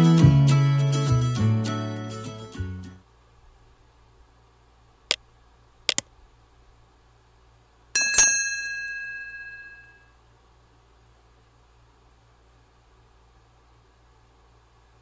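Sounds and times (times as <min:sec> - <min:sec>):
bell ding: 0:08.0 - 0:10.1.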